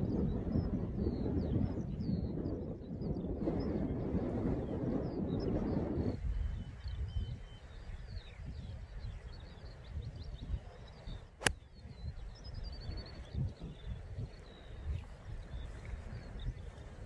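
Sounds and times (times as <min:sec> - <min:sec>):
wind rumble on microphone: 0:00.0 - 0:17.0
birds twittering: 0:04.6 - 0:17.0.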